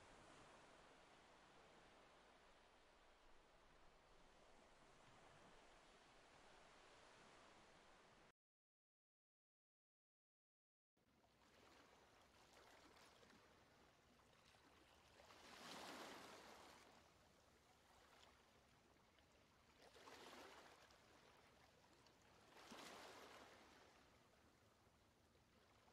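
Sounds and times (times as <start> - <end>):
small waves on a stony shore: 0.0 - 8.3, 11.0 - 25.9.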